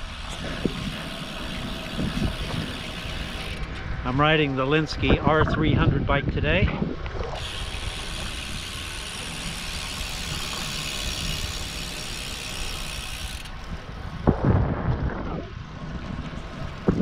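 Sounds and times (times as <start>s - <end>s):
bike tyres hissing on damp pavement: 0.0s - 3.7s, 7.4s - 14.2s
wind rumble on microphone: 0.0s - 17.0s
low thumps: 14.2s - 15.6s.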